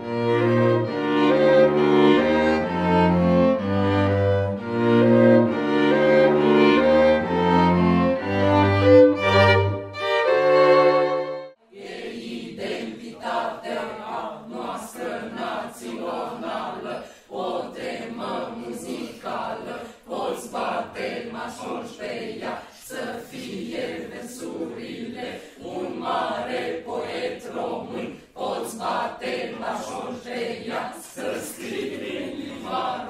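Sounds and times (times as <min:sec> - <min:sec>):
small choir singing: 0:08.9 - 0:33.0.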